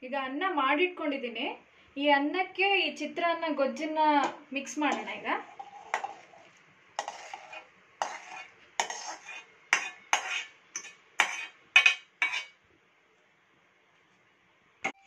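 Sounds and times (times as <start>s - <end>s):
metal ladle scraping a pan: 4.2s - 12.6s.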